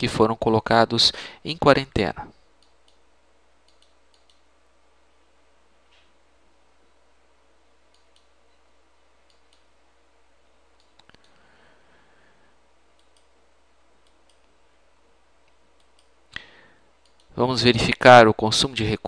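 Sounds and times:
computer mouse clicking: 0:02.6 - 0:03.0, 0:03.6 - 0:04.5, 0:07.9 - 0:08.6, 0:09.2 - 0:09.7, 0:10.8 - 0:11.4, 0:12.9 - 0:13.4, 0:14.0 - 0:14.6, 0:15.4 - 0:16.2, 0:17.0 - 0:17.3.

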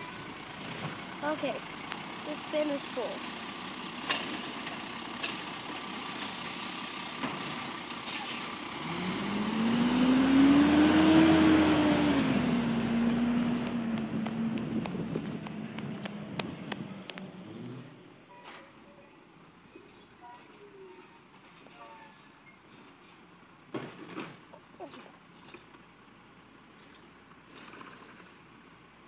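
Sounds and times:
diesel truck engine revving: 0:07.9 - 0:17.9
thin high squeal: 0:17.2 - 0:22.6.

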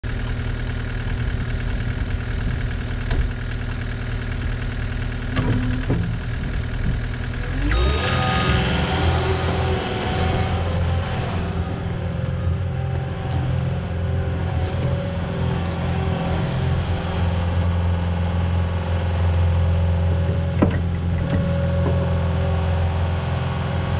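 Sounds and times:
diesel engine idling and revving: 0:00.0 - 0:23.9
high whine: 0:05.3 - 0:17.7.

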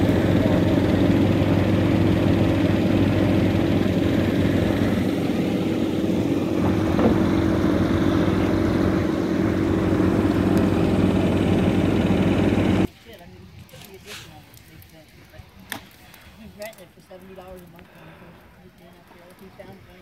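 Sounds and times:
truck engine idling: 0:00.0 - 0:12.9.

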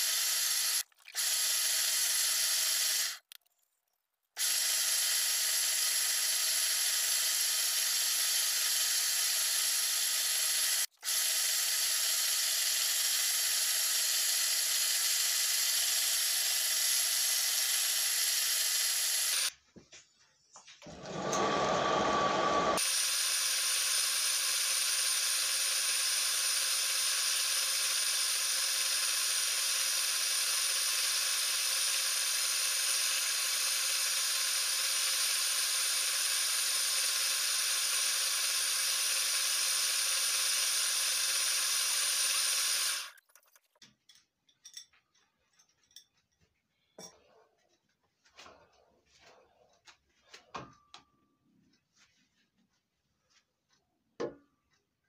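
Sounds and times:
wood lathe motor hum and whine: 0:20.9 - 0:43.1.

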